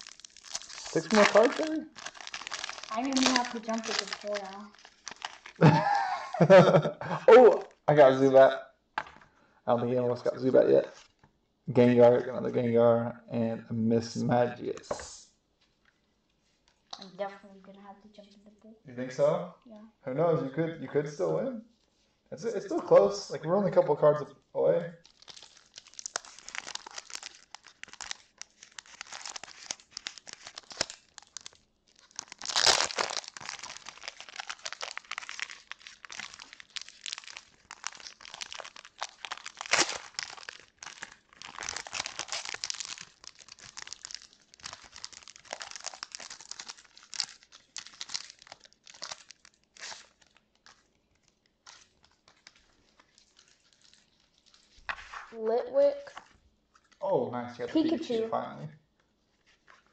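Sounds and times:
wrapper ripping: 0:00.0 - 0:06.5, 0:25.0 - 0:55.4
plastic wrapper crinkling: 0:00.0 - 0:06.7, 0:25.0 - 0:57.0, 0:58.9 - 0:59.9.

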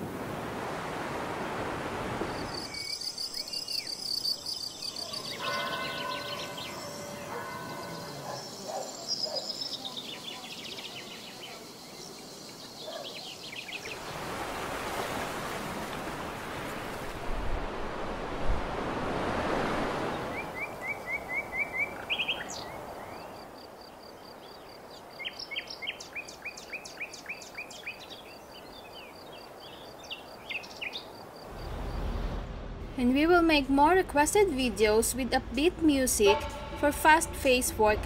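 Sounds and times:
small birds chirping: 0:02.3 - 0:14.2, 0:20.1 - 0:31.4
rushing noise: 0:31.5 - 0:33.1
low bumps: 0:31.5 - 0:34.2.

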